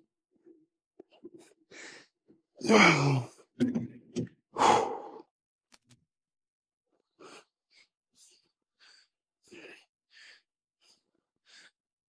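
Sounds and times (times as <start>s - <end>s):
man groaning: 2.6s - 3.3s
man grunting: 2.6s - 3.3s
man breathing hard: 4.6s - 5.3s, 7.1s - 11.8s.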